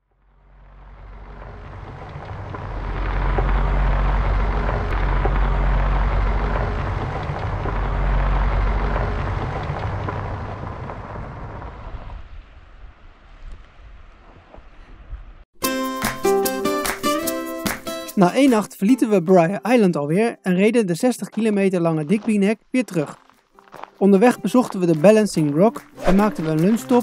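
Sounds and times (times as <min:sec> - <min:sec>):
wind buffeting microphone: 0:01.3 - 0:15.4.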